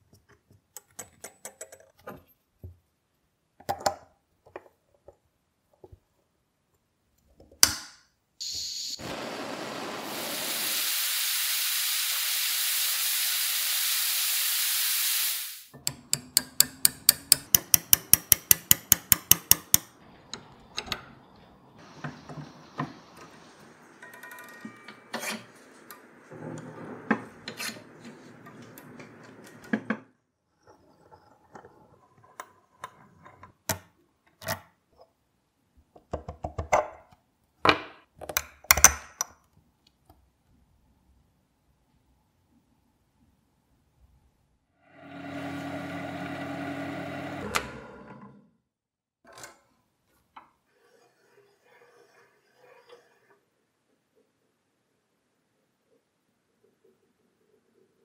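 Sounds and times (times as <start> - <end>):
gas torch hissing: 8.4 - 15.7.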